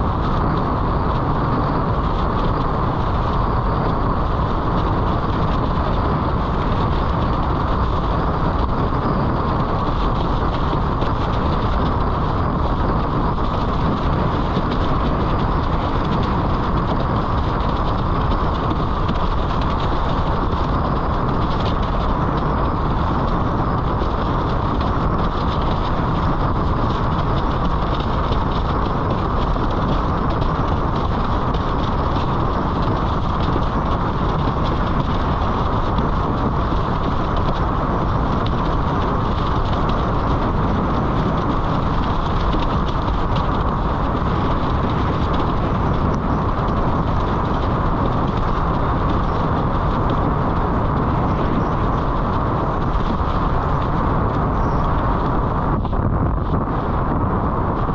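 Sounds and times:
wind buffeting microphone: 0.0 - 57.9.

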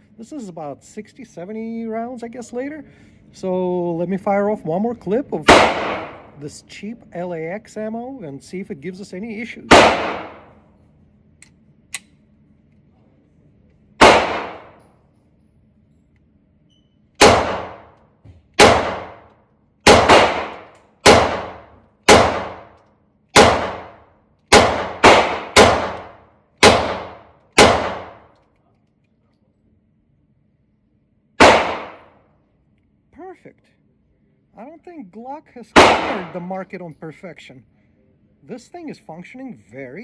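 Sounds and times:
pistol shots with echo: 5.4 - 6.4, 9.7 - 10.6, 14.0 - 14.8, 17.2 - 28.4, 31.4 - 32.2, 35.8 - 36.6.

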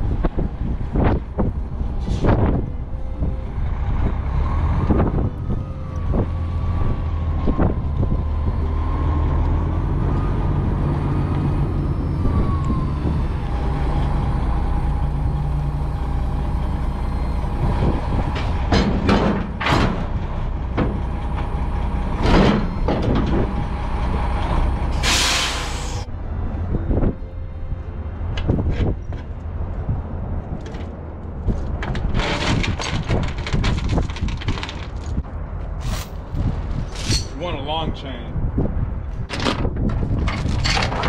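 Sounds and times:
air brake hiss: 25.0 - 26.1.

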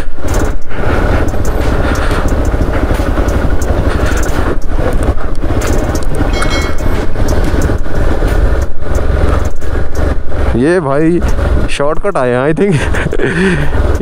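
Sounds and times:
knocks and rattles over stones: 0.0 - 10.1
motorcycle engine at low speed: 0.0 - 14.0.

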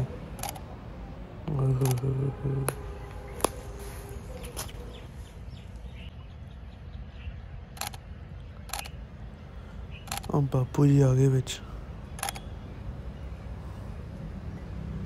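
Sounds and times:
camera shutter clicking: 0.4 - 0.6, 7.8 - 8.0, 8.7 - 9.0, 10.1 - 10.3, 12.2 - 12.5.

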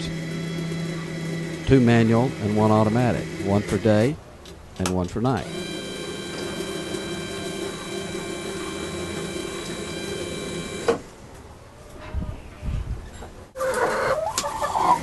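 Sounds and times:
small motor whining: 5.4 - 11.0.

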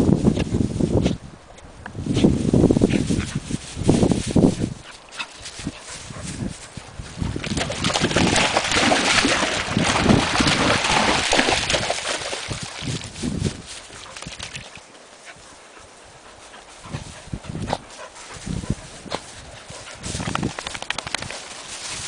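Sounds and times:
dog splashing through water: 7.3 - 13.1.

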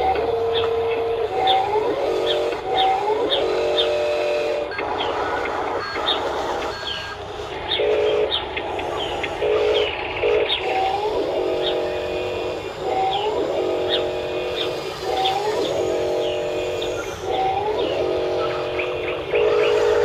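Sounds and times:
toy electric motors whining: 0.0 - 20.0.

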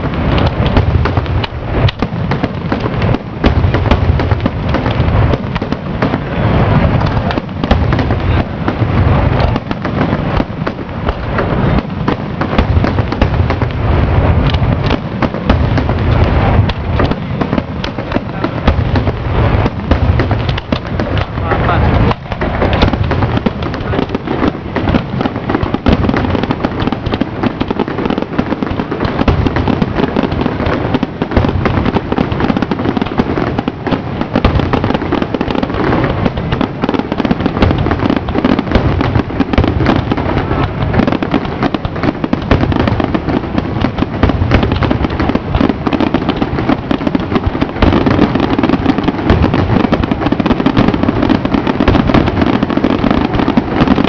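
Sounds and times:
fireworks bursting: 0.0 - 54.0.

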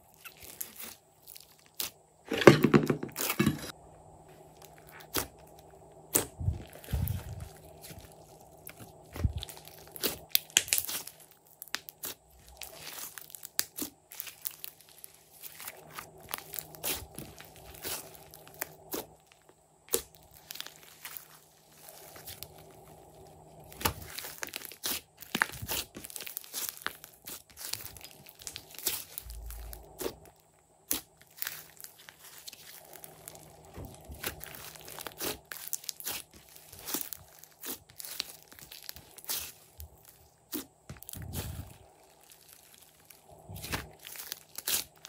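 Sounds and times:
hands squeezing slime: 6.1 - 19.1, 30.9 - 45.0.

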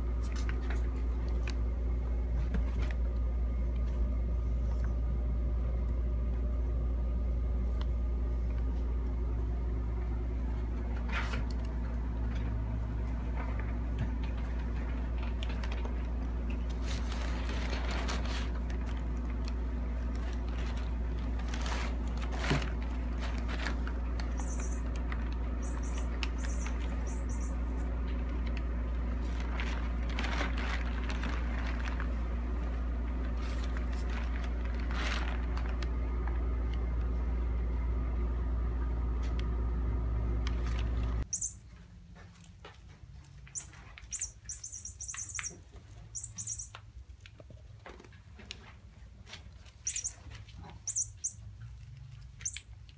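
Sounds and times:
steady low hum: 0.0 - 52.9
packing paper rustling: 15.3 - 27.0, 27.8 - 36.3.

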